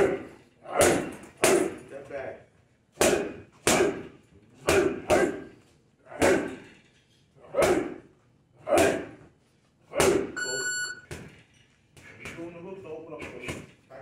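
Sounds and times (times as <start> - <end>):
high electronic beep: 10.4 - 11.0.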